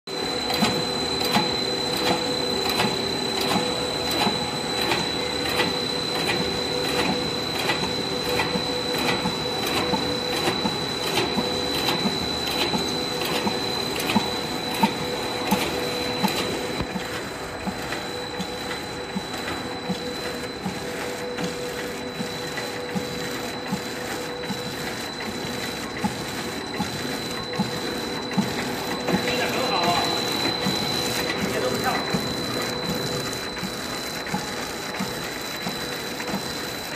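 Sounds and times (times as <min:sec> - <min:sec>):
machine whine: 0:00.1 - 0:36.9.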